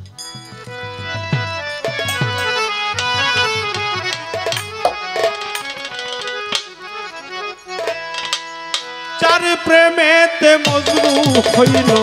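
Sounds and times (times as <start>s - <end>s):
harmonium chords and melody: 0.0s - 12.0s
hand drum strokes: 0.4s - 6.6s.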